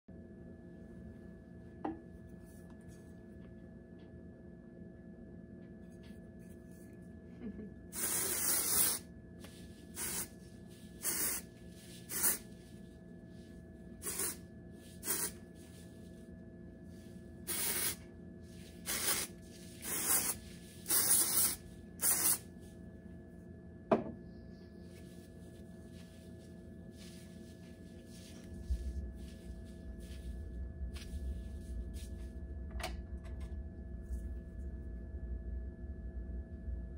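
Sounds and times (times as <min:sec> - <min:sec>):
aerosol can spraying: 0:08.0 - 0:09.0, 0:09.9 - 0:10.4, 0:11.0 - 0:12.4, 0:14.0 - 0:14.4, 0:15.0 - 0:15.4, 0:17.5 - 0:18.0, 0:18.7 - 0:22.5.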